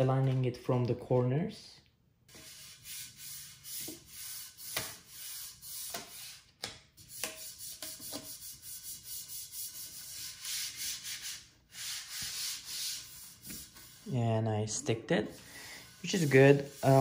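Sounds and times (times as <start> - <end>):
hand rubbing plastic sheet: 2.3 - 14.2, 15.2 - 17.0.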